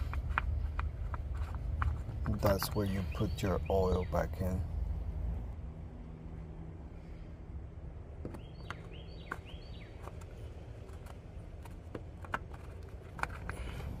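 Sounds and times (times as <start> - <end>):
low outdoor rumble: 0.0 - 14.0
bird chirping: 2.3 - 4.6, 8.3 - 10.5.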